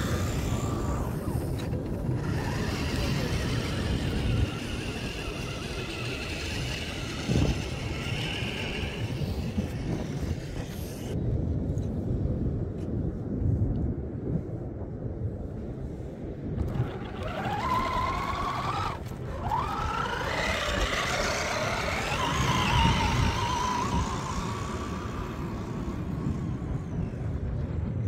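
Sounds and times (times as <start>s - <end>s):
model car motor whine: 0.0s - 11.2s, 16.6s - 27.1s
steady rumbling noise: 0.0s - 28.0s.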